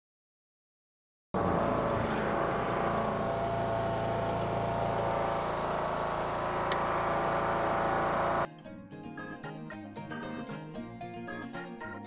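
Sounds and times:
riding lawn mower engine: 1.4s - 8.5s.

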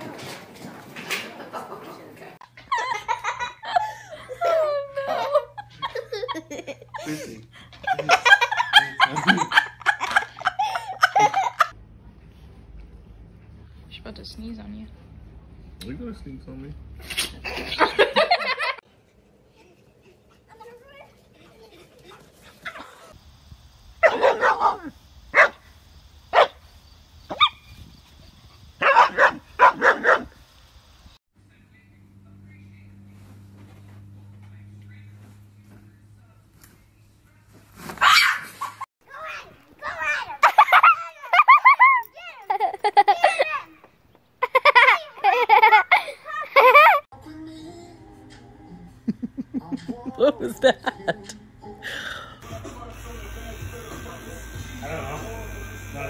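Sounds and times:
person laughing heartily: 2.6s - 11.7s, 44.4s - 47.0s, 49.0s - 52.8s
dog barking: 24.0s - 25.6s, 26.3s - 26.6s, 28.8s - 30.3s.

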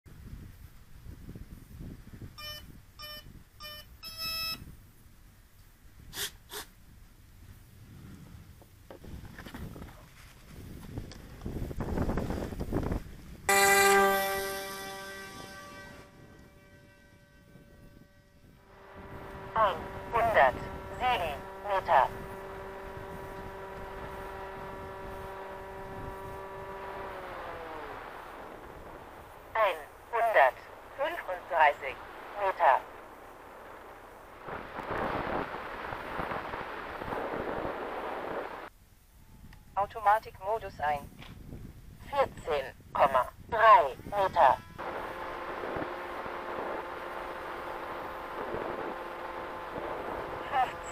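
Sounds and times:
wind noise: 0.1s - 50.9s
model plane motor whine: 13.5s - 38.7s, 43.7s - 50.9s
low rumble: 14.2s - 38.7s.

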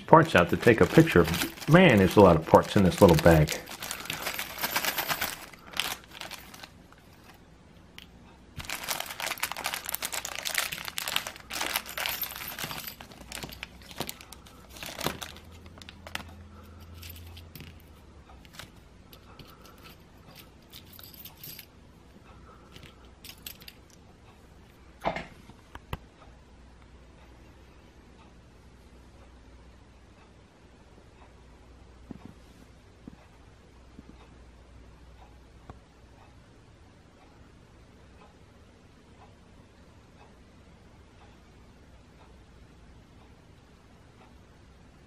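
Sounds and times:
plastic bag crinkling: 0.0s - 7.4s, 8.6s - 16.4s.

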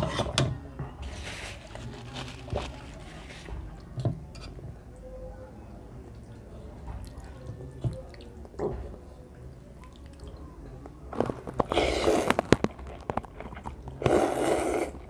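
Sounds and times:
person slurping noodles: 11.6s - 12.6s, 13.6s - 15.0s.

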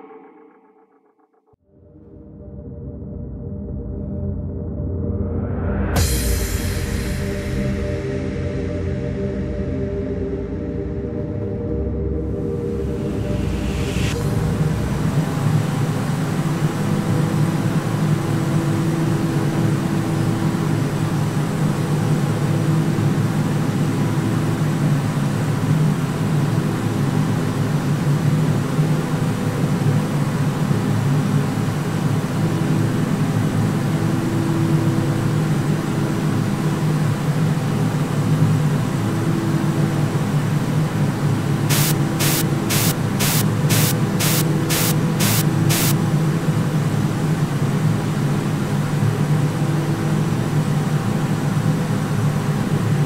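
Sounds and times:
noisy ambient drone: 0.0s - 53.0s
sharp high ticks: 41.7s - 46.0s.

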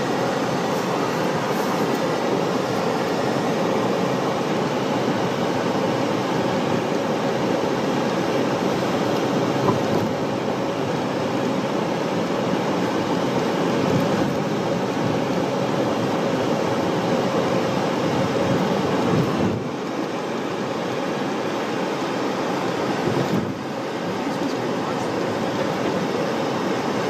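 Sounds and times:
car engine and road noise: 0.0s - 27.0s.

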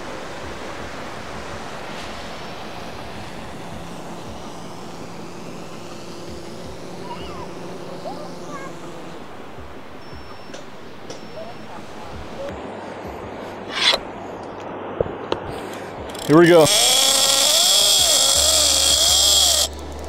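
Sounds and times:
drone humming: 0.0s - 15.0s, 15.9s - 20.0s
wind: 0.0s - 20.0s.

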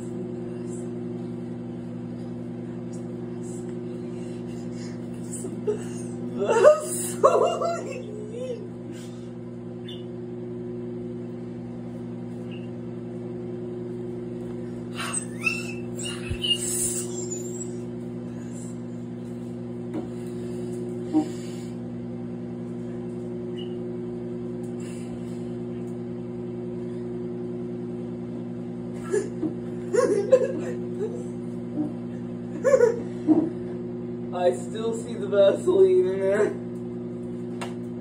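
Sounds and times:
microwave oven humming: 0.0s - 38.0s.

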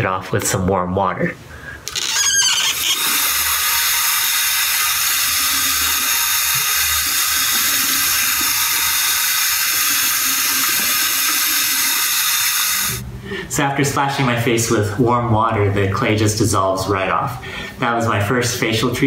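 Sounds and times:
tap running into sink: 3.0s - 12.2s.

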